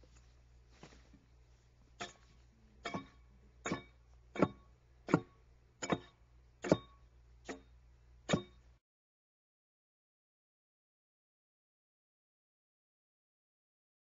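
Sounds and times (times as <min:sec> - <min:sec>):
axe chopping into log: 0:02.9 - 0:06.9, 0:08.3 - 0:08.6.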